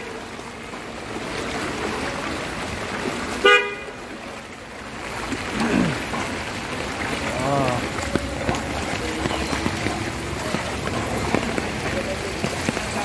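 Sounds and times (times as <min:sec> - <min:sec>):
rain and water on street: 0:00.0 - 0:13.0
vehicle horn toot: 0:03.4 - 0:03.9.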